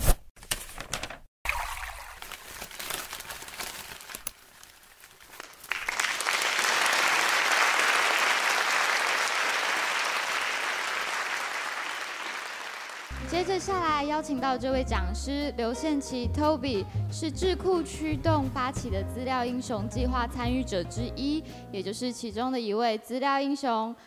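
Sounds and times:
crackling clicks: 0:03.8 - 0:05.7
crowd clapping: 0:05.4 - 0:13.8.

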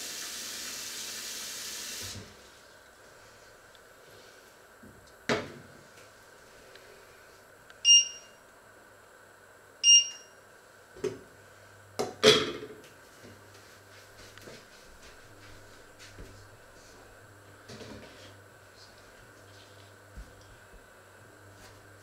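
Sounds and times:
short electronic beeps: 0:07.8 - 0:08.4, 0:09.8 - 0:10.4.

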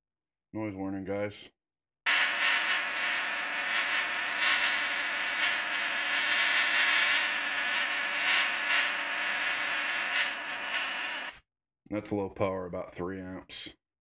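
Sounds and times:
tesla coil spark crackling: 0:02.1 - 0:11.4.

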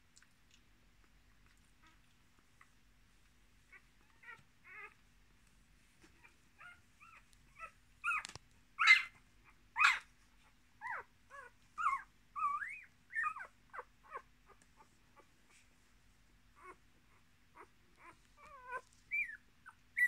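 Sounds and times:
puppies squealing and whimpering: 0:06.6 - 0:09.2, 0:09.8 - 0:10.1, 0:10.9 - 0:14.2, 0:17.6 - 0:20.0.

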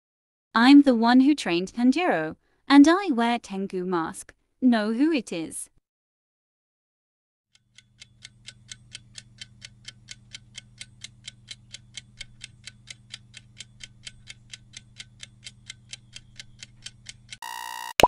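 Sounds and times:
clock-like timer ticking: 0:07.6 - 0:18.0.

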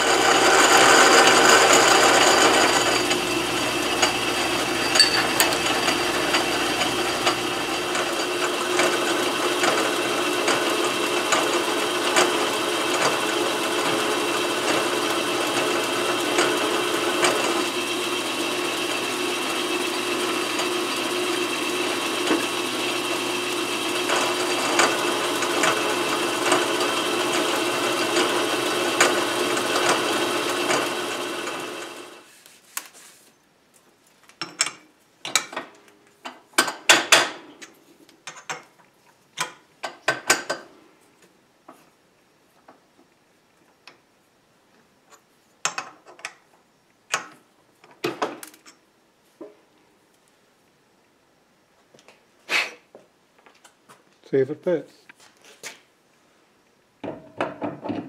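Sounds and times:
drill cutting metal: 0:00.0 - 0:32.2
metal lathe gear whine: 0:00.0 - 0:32.2.

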